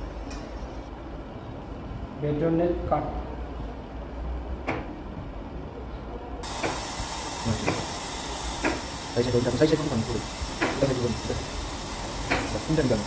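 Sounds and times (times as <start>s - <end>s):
steady hiss: 6.4s - 13.0s.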